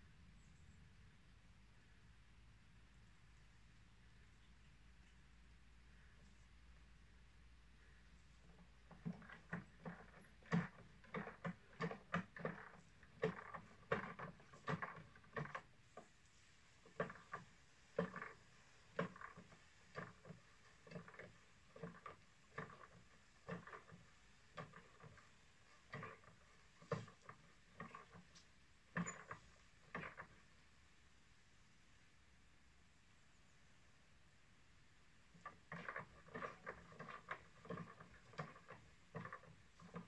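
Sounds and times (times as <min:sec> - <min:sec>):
pump lever creaking knocks: 0:08.5 - 0:15.7, 0:25.9 - 0:30.4.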